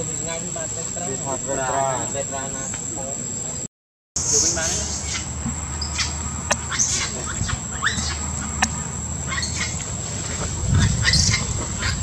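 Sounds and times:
animal squeaks and chirps: 4.2 - 9.8, 10.8 - 12.0.

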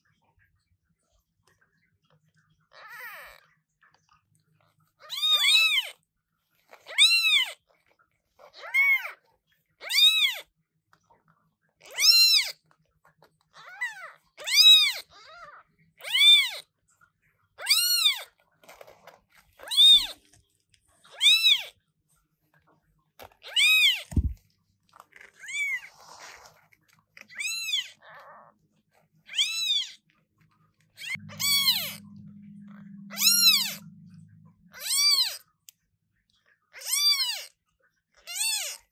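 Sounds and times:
kitten meowing loudly: 11.9 - 12.6, 31.0 - 32.2, 33.1 - 33.9, 34.7 - 35.4, 36.8 - 37.5
low thump: 24.1 - 24.4
low hum: 31.0 - 35.3.

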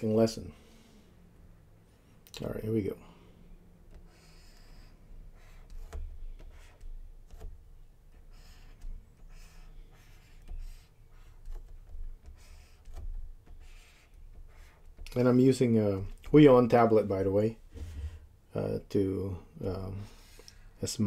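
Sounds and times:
stylus scratching on pen tablet: 3.9 - 15.4.

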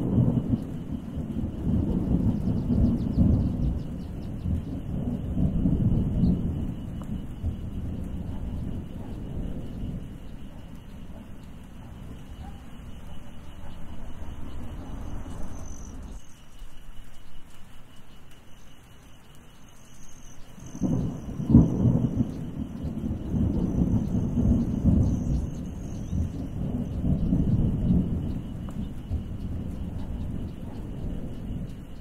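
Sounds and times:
sharp thunderclap: 0.0 - 12.5, 20.6 - 32.0
rolling thunder: 0.0 - 16.2, 20.6 - 32.0
steady rain: 0.0 - 32.0.

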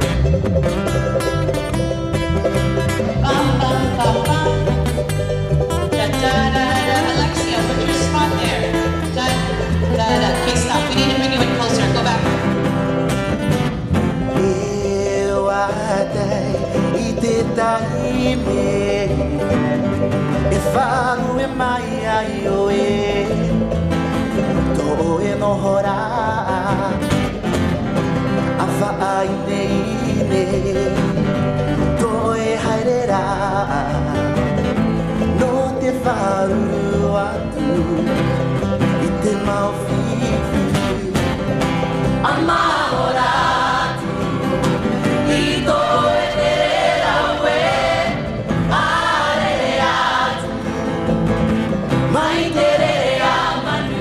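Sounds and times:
plucked string instruments: 0.0 - 54.0
strummed acoustic guitar: 0.0 - 54.0
man singing: 3.2 - 4.9, 5.9 - 12.5, 14.1 - 27.4, 28.5 - 41.5.

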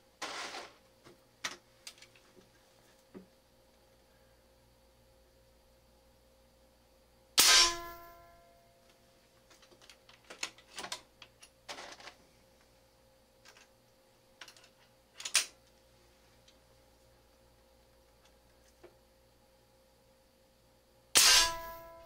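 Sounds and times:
air rifle shot: 7.4 - 8.0, 21.2 - 21.8.

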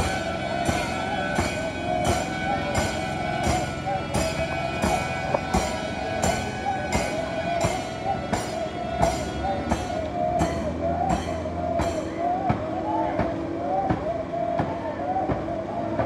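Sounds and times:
sharp percussive beat: 0.0 - 12.6
wavering chant-like melody: 0.0 - 16.0.

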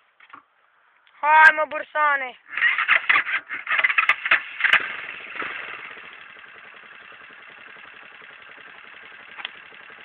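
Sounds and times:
small atv engine idling: 2.5 - 10.0.

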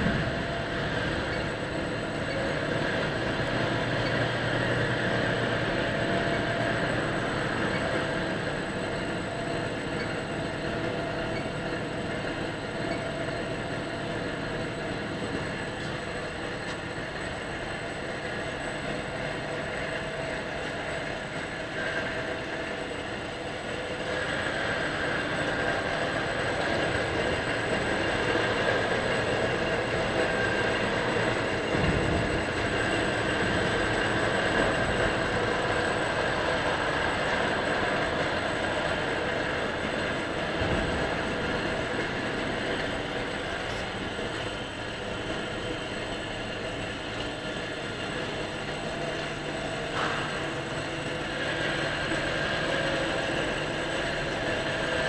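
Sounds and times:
machine hums and whines: 0.0 - 55.0
moulding machine running: 0.0 - 55.0.

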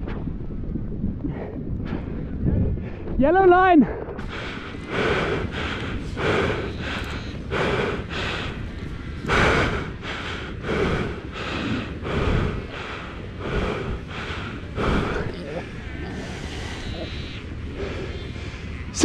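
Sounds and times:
person breathing hard: 4.2 - 16.9.

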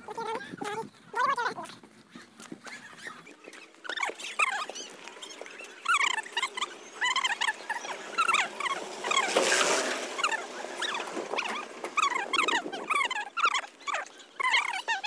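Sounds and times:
high-pitched animal cries: 10.2 - 15.0.

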